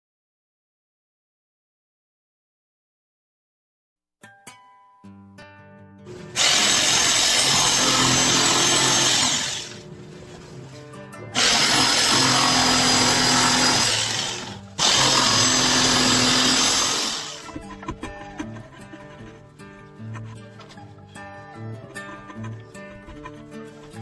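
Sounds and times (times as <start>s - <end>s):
jigsaw sawing wood: 6.4s - 9.8s, 11.4s - 17.7s.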